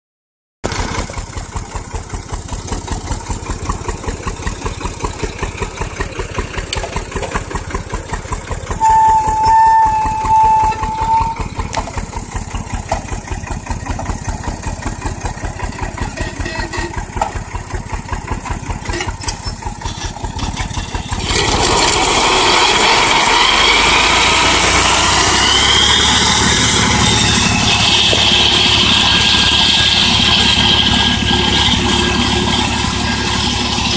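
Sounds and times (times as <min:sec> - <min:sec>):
mower cutting grass: 0:00.6 - 0:33.9
tractor diesel engine pulsing: 0:00.6 - 0:33.9
steady high tone: 0:23.5 - 0:33.9.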